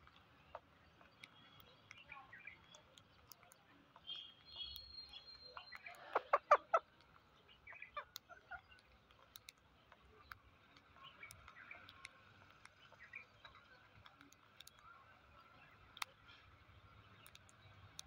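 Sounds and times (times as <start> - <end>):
beaks clicking on rice: 0.0 - 18.0
parakeets calling: 5.5 - 9.0.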